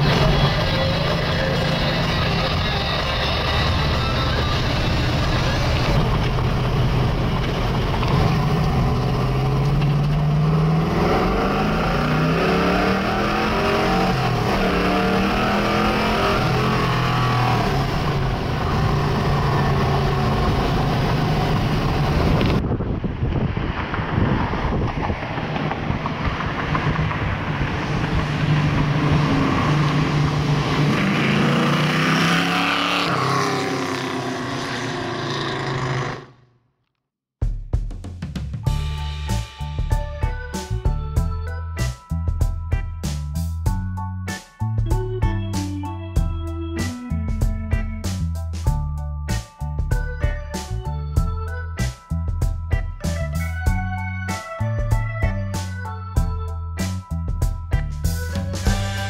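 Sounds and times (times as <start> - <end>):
car engine accelerating through gears: 0.0 - 22.6, 23.9 - 36.4.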